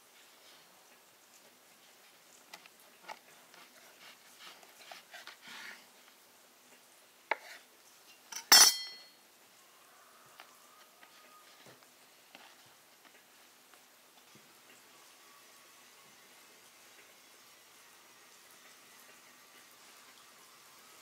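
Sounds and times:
knife cutting dough on wooden board: 7.3s - 7.7s
knife set down with metallic clink: 8.3s - 9.1s.

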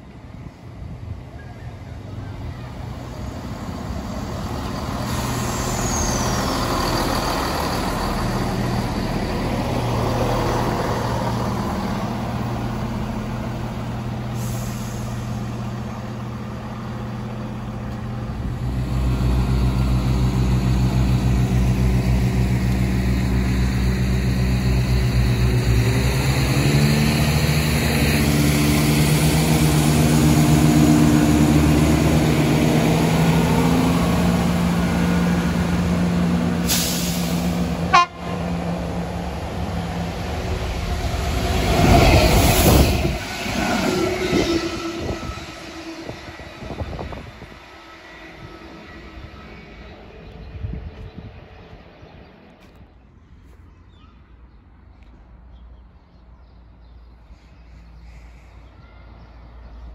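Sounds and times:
train rumbling on rails: 0.0s - 53.4s
deep diesel engine drone: 2.0s - 43.6s.

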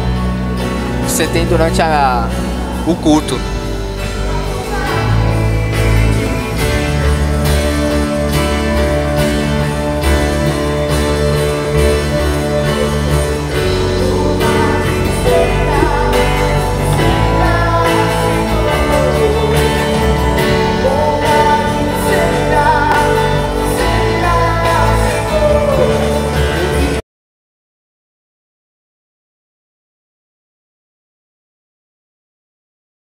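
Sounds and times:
band playing worship music: 0.0s - 27.0s
person singing: 1.2s - 27.0s.

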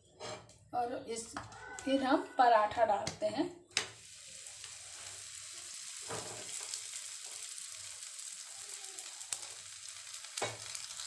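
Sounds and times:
flatbread sizzling in ghee: 3.8s - 11.0s.

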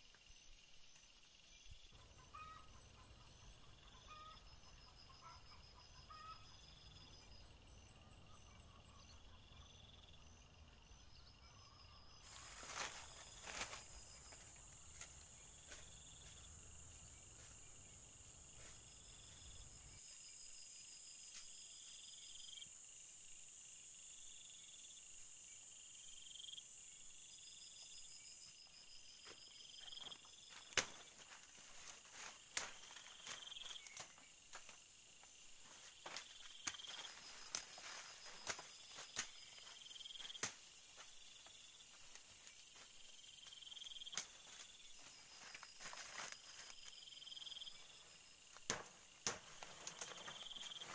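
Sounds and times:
insects trilling: 0.0s - 50.9s
footsteps crunching in dry leaves: 12.3s - 16.4s, 30.0s - 43.0s, 44.0s - 47.1s.

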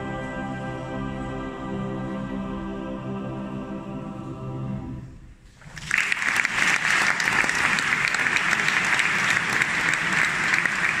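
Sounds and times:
male choir holding chord: 0.0s - 5.1s
audience applause: 5.6s - 11.0s.

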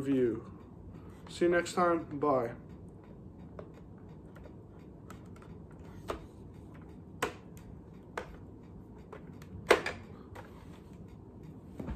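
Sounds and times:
plastic toy clicks and knocks: 9.0s - 10.5s.

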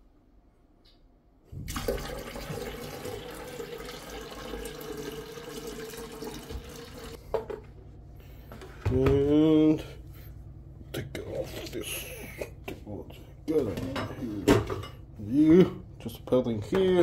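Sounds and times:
tap water filling a kettle: 1.6s - 7.2s.

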